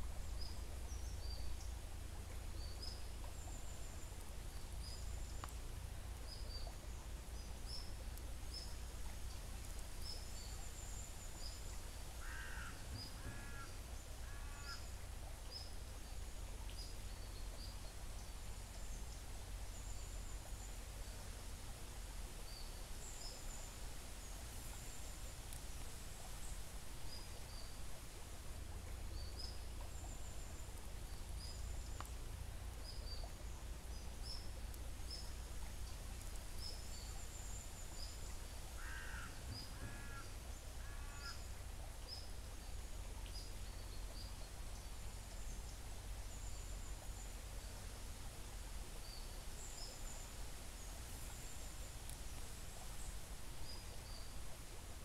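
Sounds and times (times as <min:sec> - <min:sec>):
stream flowing over gravel: 0:00.0 - 0:55.0
small birds chirping: 0:22.4 - 0:55.0.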